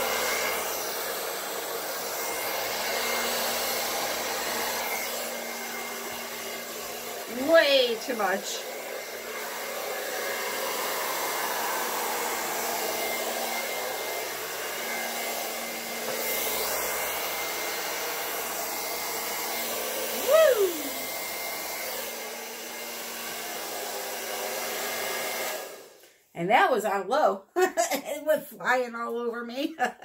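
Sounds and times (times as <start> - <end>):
blow dryer running: 0.0 - 26.0
person exclaiming woo: 20.1 - 21.0.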